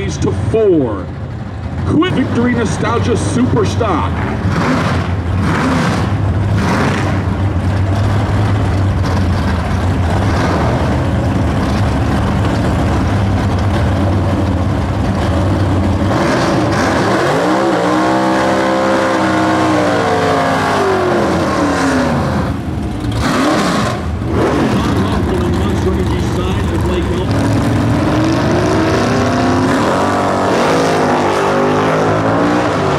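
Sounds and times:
drag racing engines running: 0:00.0 - 0:32.9
engine revving: 0:01.8 - 0:32.9.

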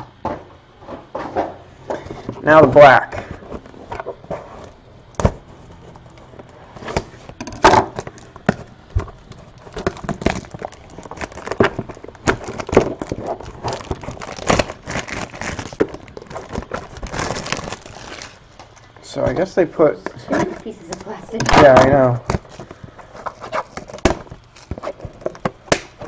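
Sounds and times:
plastic wrap crackling: 0:05.8 - 0:18.9, 0:20.4 - 0:26.0.

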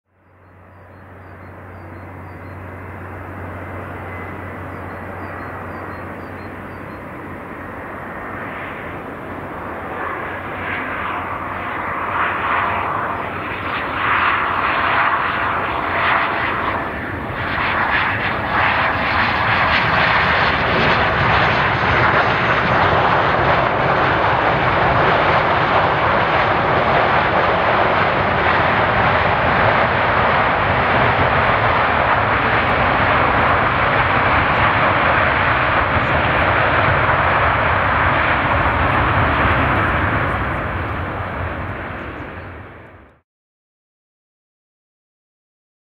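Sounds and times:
faint falling whine: 0:00.2 - 0:08.1
jet landing: 0:00.3 - 0:43.2.

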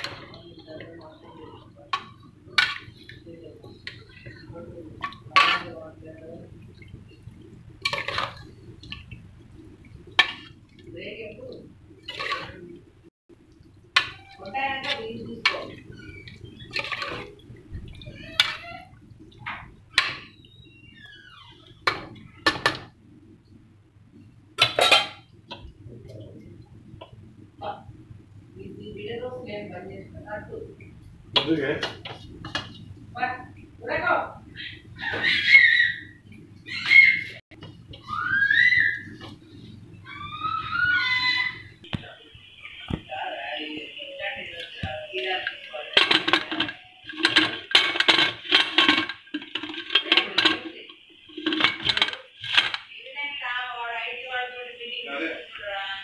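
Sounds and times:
metal spoon clinking against pot: 0:45.9 - 0:50.7, 0:51.4 - 0:52.8.

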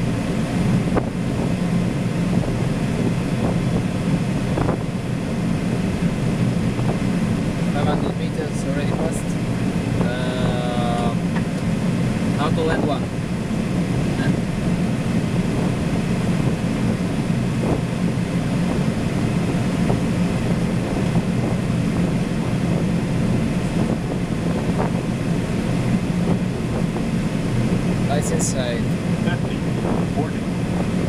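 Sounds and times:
airplane cockpit air rush: 0:00.0 - 0:31.0.

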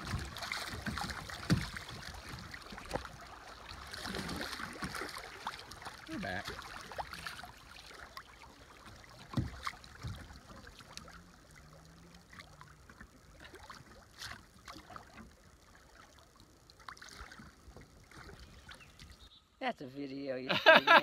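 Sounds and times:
low knocks against boat: 0:00.0 - 0:03.1, 0:09.2 - 0:10.5
water lapping at kayak hull: 0:00.0 - 0:19.4.

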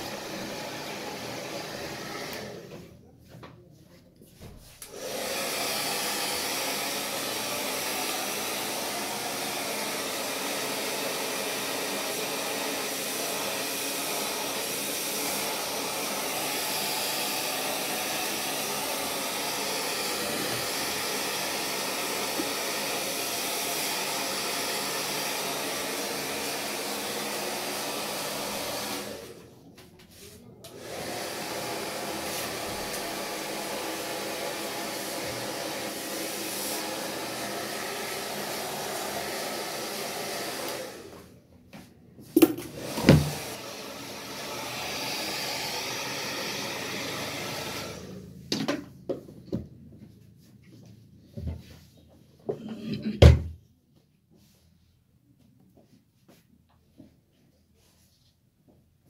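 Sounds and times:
hair dryer blowing: 0:00.0 - 0:02.9, 0:04.8 - 0:29.6, 0:30.6 - 0:41.4, 0:42.3 - 0:48.9.

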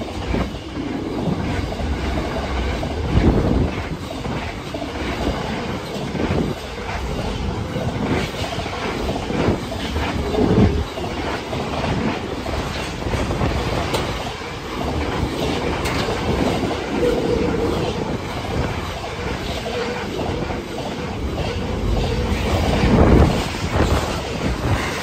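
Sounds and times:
train wheels clattering over rails: 0:00.0 - 0:25.0.

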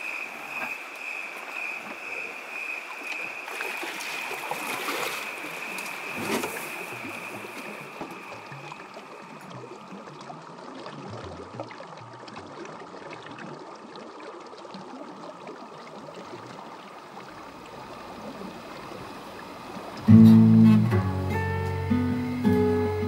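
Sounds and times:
river water flowing: 0:00.0 - 0:23.0
acoustic guitar strumming: 0:20.0 - 0:23.0.

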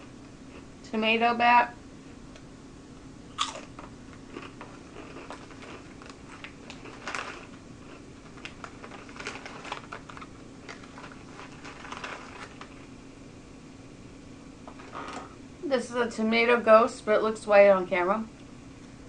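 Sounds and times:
chips being crunched and chewed: 0:03.4 - 0:12.8
plastic bag crinkling: 0:03.4 - 0:12.9, 0:14.7 - 0:15.3.

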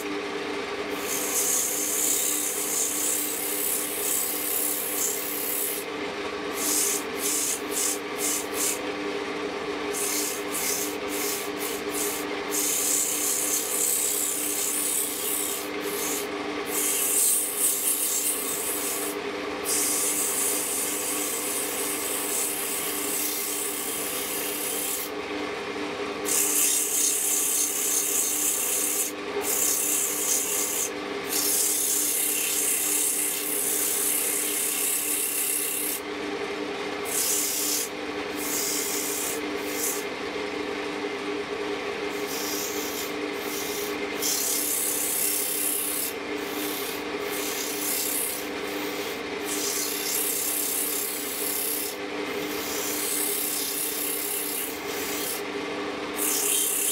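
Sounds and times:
lathe motor hum: 0:00.8 - 0:19.2, 0:26.3 - 0:36.0, 0:41.9 - 0:55.4
sandpaper rasping on wood: 0:06.5 - 0:08.8, 0:09.9 - 0:25.1, 0:26.2 - 0:36.0, 0:37.1 - 0:40.0, 0:42.2 - 0:55.4.

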